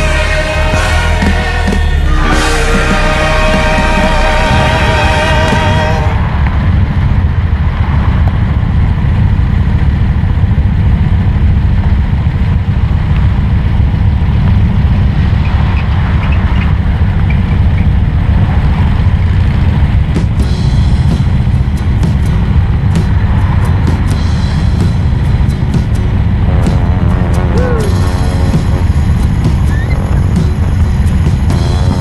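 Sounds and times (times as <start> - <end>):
music: 0.0 - 6.3, 20.2 - 32.0
motor trike engines rumbling: 0.0 - 32.0.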